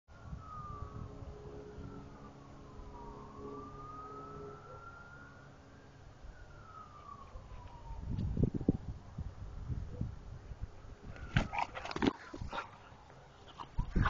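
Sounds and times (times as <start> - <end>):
distant siren wailing: 0.1 - 9.8.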